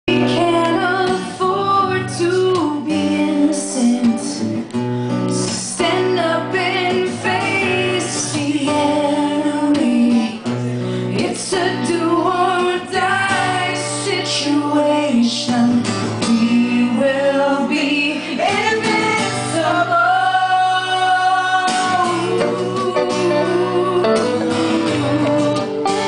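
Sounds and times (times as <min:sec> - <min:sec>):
acoustic guitars: 0:00.1 - 0:26.0
person singing: 0:05.3 - 0:10.5, 0:11.1 - 0:26.0.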